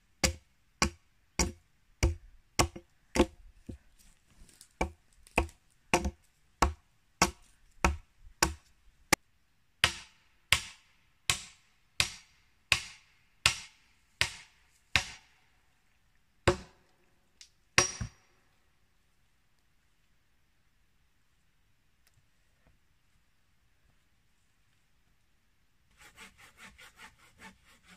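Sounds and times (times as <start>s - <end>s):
axe chopping log: 0.2s - 3.4s, 4.8s - 8.6s, 12.8s - 15.2s, 16.5s - 16.8s.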